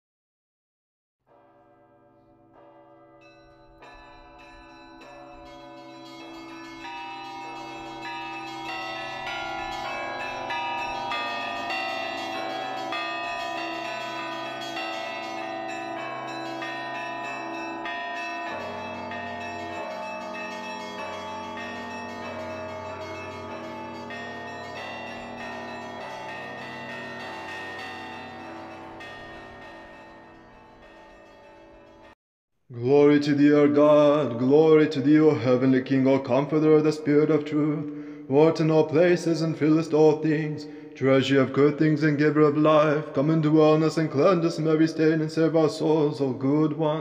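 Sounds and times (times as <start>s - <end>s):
church bells pealing: 1.3s - 32.2s, 33.2s - 47.0s
deep low bell tone: 1.4s - 32.1s.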